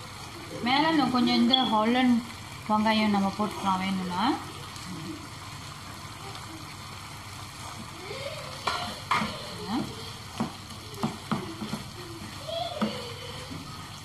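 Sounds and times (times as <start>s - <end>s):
chicken sizzling in frying pan: 0.0s - 14.0s
spatula knocking and scraping pan: 8.6s - 9.4s, 10.3s - 13.8s.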